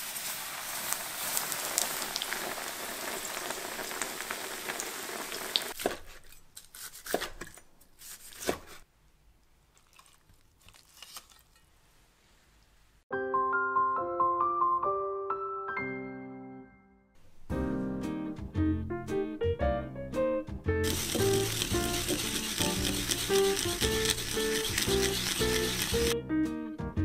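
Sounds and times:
chicken frying in oil: 0.0s - 5.8s, 20.8s - 26.2s
knife crunching through crust: 5.8s - 8.8s, 9.8s - 11.7s, 20.9s - 26.2s.

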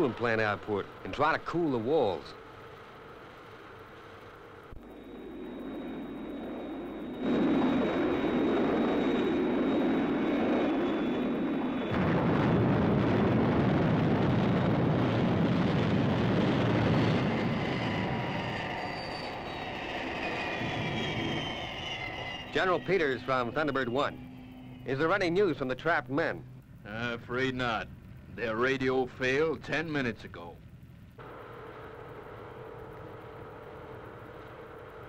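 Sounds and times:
hiss with high whine: 0.0s - 35.0s
jet engine rushing: 4.7s - 29.3s.

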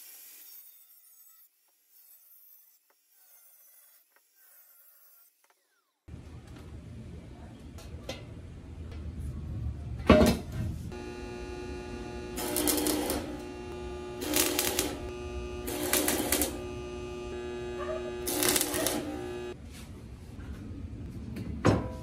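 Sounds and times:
steady hum: 10.9s - 19.6s
welding arc crackle: 10.9s - 19.6s.

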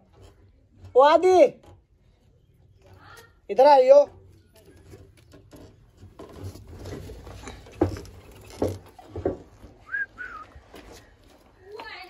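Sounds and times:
rustling: 4.1s - 12.0s
knocks and clunks: 4.8s - 10.0s.

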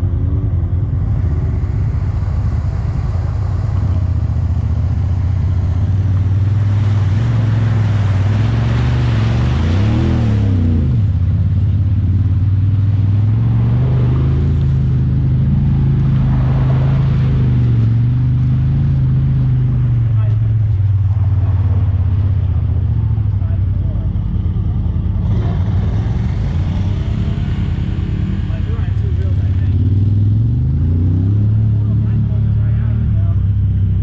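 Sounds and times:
engine revving: 0.0s - 34.0s
vehicle engine running: 0.0s - 34.0s
rushing noise: 0.6s - 11.6s.

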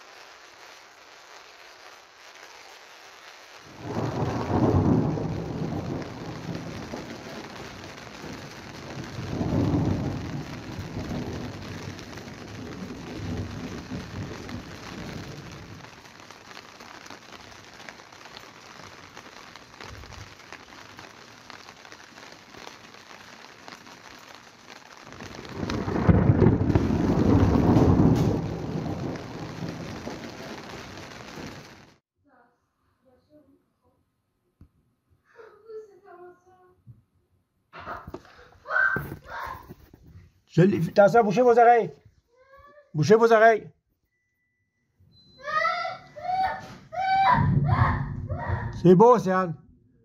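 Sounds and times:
rain hissing: 0.0s - 32.0s, 45.4s - 49.5s
thunder rumbling: 3.6s - 23.4s, 24.0s - 32.0s, 47.0s - 49.3s.

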